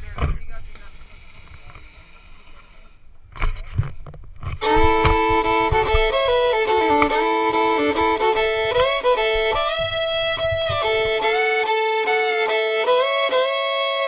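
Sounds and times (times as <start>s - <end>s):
country music with fiddle: 4.4s - 14.0s.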